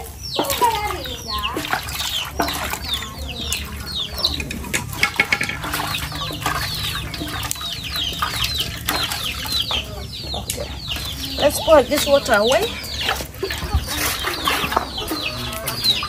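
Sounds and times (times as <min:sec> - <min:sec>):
chicks peeping: 0:00.0 - 0:16.0
hen clucking: 0:00.0 - 0:16.0
sharp knocks: 0:04.3 - 0:07.6.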